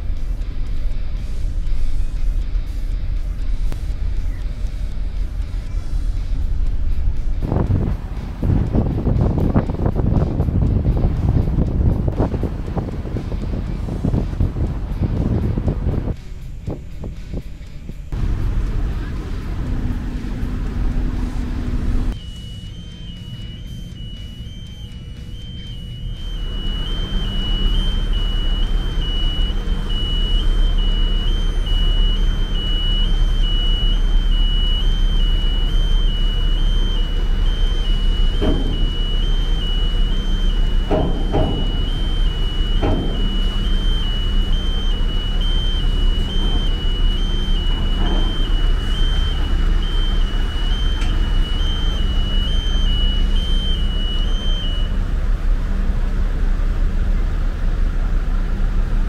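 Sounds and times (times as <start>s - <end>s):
vehicle engines running: 0.0s - 59.0s
two-pitch electronic warning beep: 21.2s - 55.0s
dull clunks: 25.5s - 54.7s.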